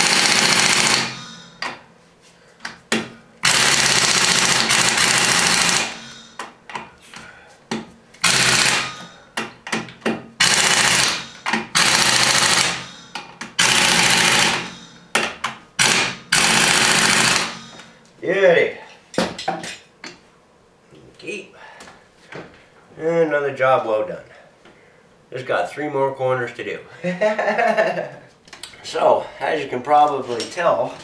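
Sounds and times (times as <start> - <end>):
pneumatic impact wrench rattling: 0.0 - 1.8, 3.4 - 6.5, 8.2 - 15.2, 15.8 - 17.8.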